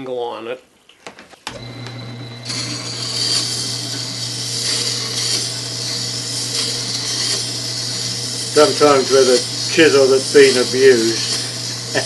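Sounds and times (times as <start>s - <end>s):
grinder motor humming: 1.5s - 12.0s
chisel grinding on wet stone: 3.0s - 12.0s.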